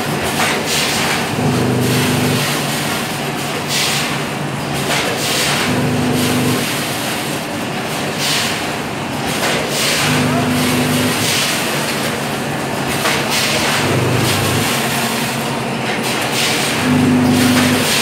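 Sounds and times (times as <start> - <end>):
packing machine mechanical din: 0.0 - 18.0
low machine hum: 1.3 - 2.6, 5.6 - 6.7, 10.0 - 11.4, 13.6 - 16.0, 16.8 - 18.0.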